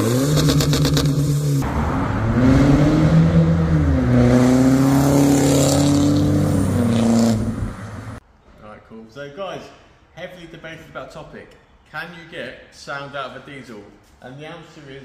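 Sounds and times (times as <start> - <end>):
car accelerating past: 0.0 - 8.2.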